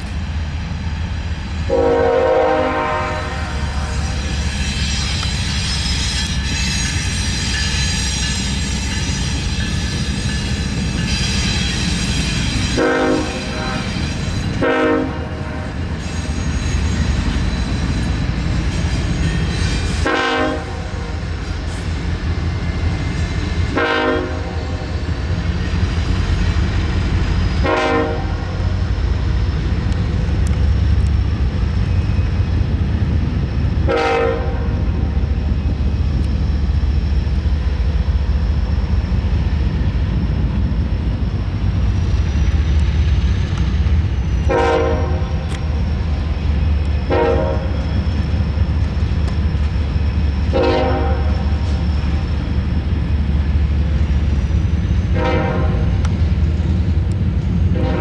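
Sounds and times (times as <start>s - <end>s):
low rumble of a train: 0.0s - 58.0s
locomotive horn blasts: 1.7s - 4.3s, 12.7s - 15.8s, 20.0s - 21.2s, 23.7s - 24.9s, 27.6s - 28.6s, 33.8s - 34.8s, 44.4s - 45.5s, 47.1s - 47.9s, 50.5s - 51.6s, 55.1s - 56.1s, 57.7s - 58.0s.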